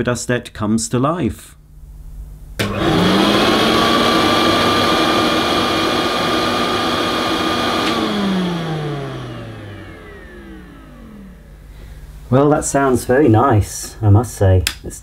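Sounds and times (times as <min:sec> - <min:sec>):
vacuum cleaner motor whine: 0:02.6 - 0:12.0.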